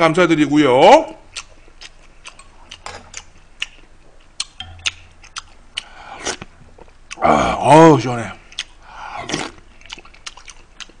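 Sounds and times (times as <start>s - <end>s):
metal spoon clinking against pot: 4.6s - 4.8s.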